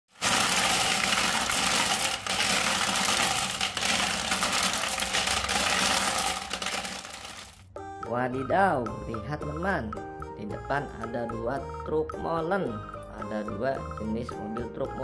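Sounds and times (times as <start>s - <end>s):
glass marbles rattling and clicking: 0.1s - 7.6s.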